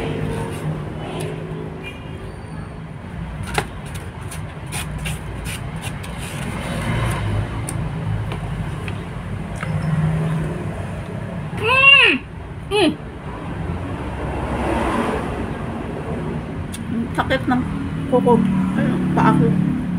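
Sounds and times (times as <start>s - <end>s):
plastic spoon scraping food box: 3.8s - 7.2s.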